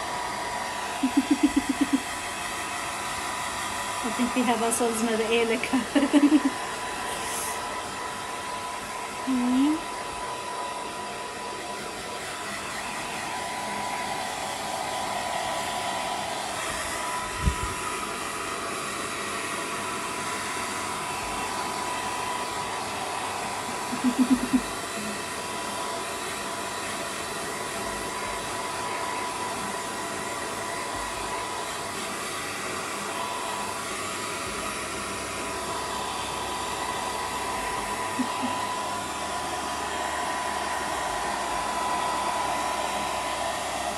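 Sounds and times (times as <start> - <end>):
hair dryer whine: 0.0 - 43.9.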